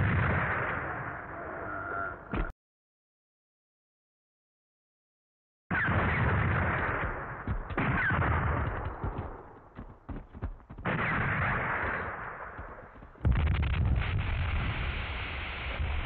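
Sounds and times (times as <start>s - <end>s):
explosions with rumble: 0.0s - 1.2s, 5.9s - 9.5s, 10.8s - 16.0s
gunfire cracks: 0.0s - 1.2s, 5.7s - 14.7s.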